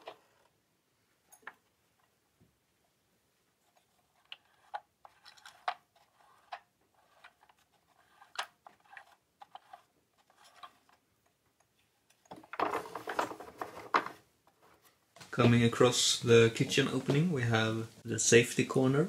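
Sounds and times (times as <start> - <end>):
toy clattering on wooden shelf: 12.1 - 14.6.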